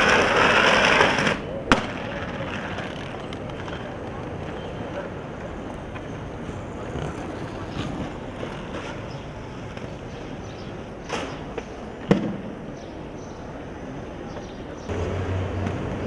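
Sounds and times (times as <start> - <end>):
skate wheels rolling over stone: 0.0 - 12.4
skates clacking on ground: 0.0 - 12.6.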